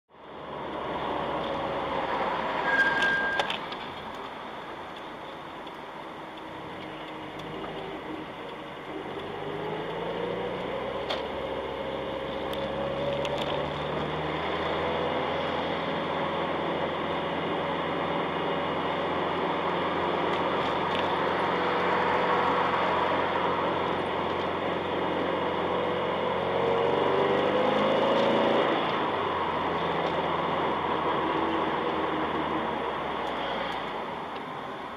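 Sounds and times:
car engine and road noise: 0.1 - 34.9
short beep: 2.6 - 3.6.

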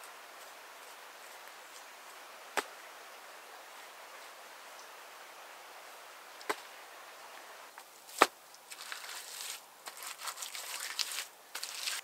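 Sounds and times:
scraping and rustling: 8.1 - 12.0.

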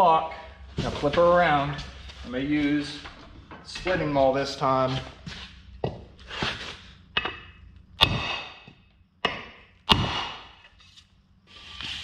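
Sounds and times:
maul striking axe handle: 7.2 - 10.6.

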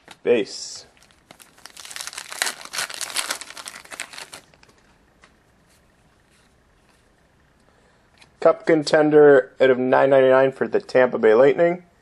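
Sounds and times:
wrapper tearing and crinkling: 0.9 - 4.7.

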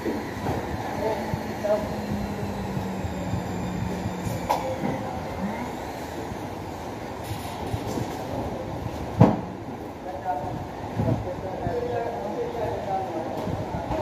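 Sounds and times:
low hum: 0.0 - 7.6
building site rumble: 0.0 - 8.8.

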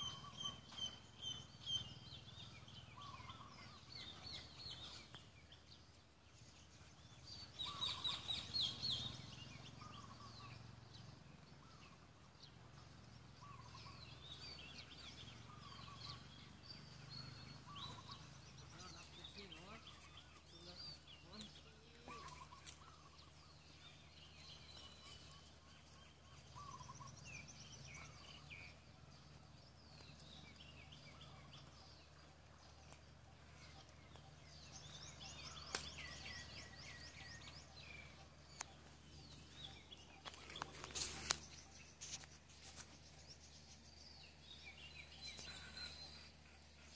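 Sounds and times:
small birds chirping: 0.0 - 46.9.

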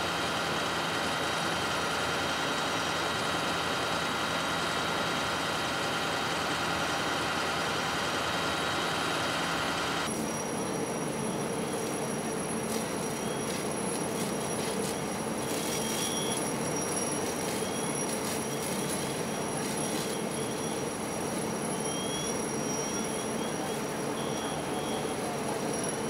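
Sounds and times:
fire engine pumps running: 0.0 - 26.0
high mechanical whine: 0.0 - 26.0
brief high squeaks: 10.2 - 26.0.

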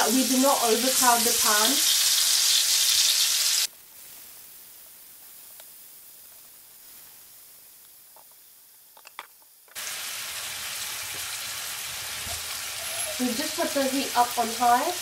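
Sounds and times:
chicken sizzling in a pan: 0.0 - 4.1, 9.8 - 15.0
light crackles: 3.6 - 9.8.

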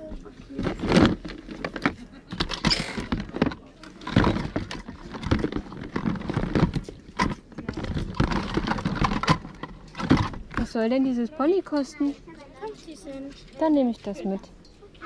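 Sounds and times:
plastic toys clattering: 0.4 - 11.2.

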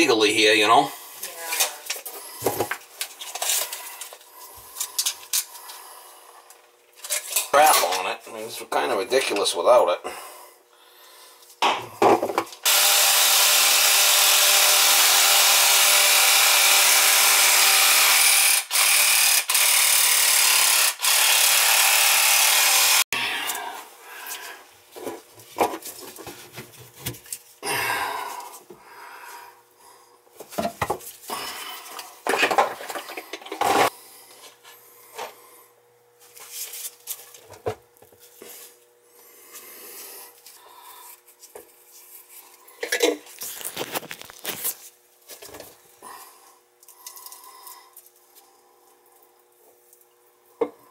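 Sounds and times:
power saw cutting plastic pipe: 12.6 - 23.1.

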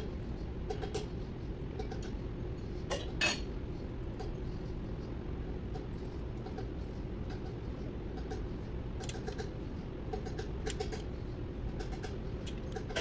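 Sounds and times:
low workshop hum: 0.0 - 13.0.

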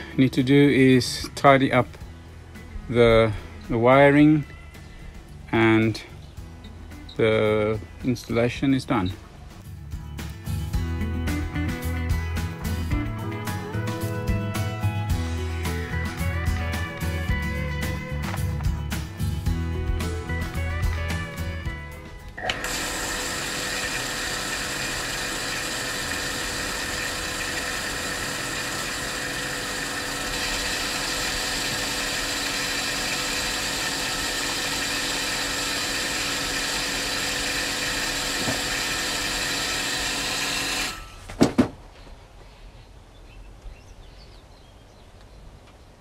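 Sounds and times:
booster pump whining: 19.9 - 41.4.

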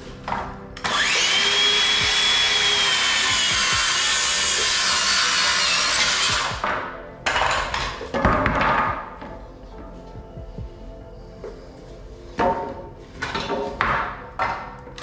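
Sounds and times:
circular saw cutting wood: 0.8 - 6.7.

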